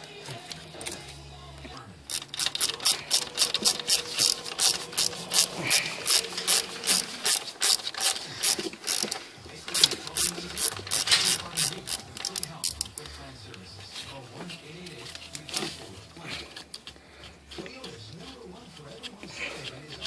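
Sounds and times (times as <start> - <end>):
hand ratchet clicking: 2.1 - 13.6, 16.4 - 18.0.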